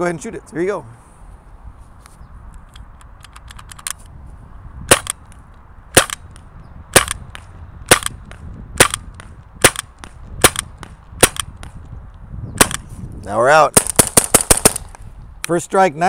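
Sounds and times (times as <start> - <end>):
paintball gun shots: 4.9 - 5.2, 6.0 - 6.3, 6.9 - 11.8, 12.6 - 12.9, 13.7 - 15.0.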